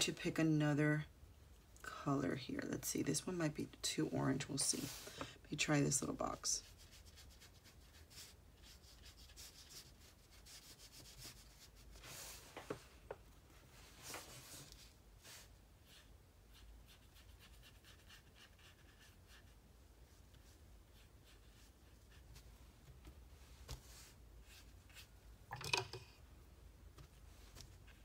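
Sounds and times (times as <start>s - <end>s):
brush scrubbing on paper: 6.5s - 12.5s, 13.9s - 22.4s.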